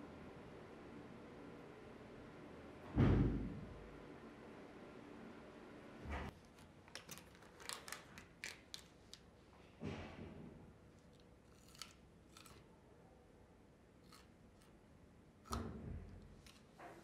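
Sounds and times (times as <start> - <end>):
plastic packaging crinkling clicks: 6.4 - 9.3
carrot crunching bites: 11.5 - 12.7, 14.0 - 14.8.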